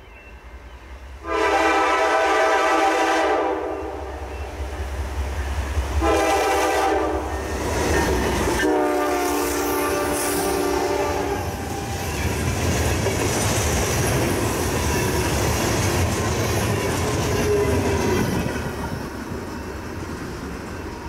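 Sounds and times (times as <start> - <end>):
low train rumble: 0.0 - 21.0
locomotive horn blasts: 1.2 - 4.3, 6.0 - 7.5, 8.5 - 12.0.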